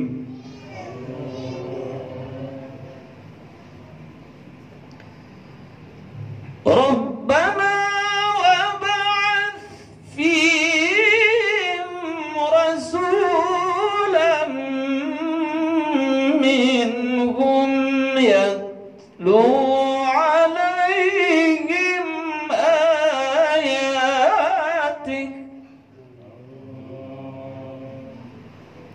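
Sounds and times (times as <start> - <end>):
man chanting into a microphone: 6.6 - 28.3.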